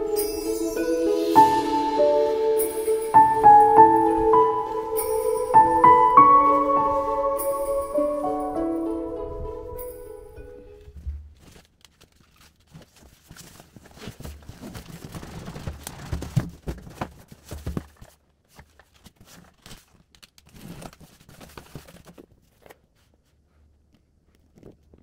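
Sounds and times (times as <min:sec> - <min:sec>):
rustling of flaps and foam packing: 0:10.8 - 0:25.0.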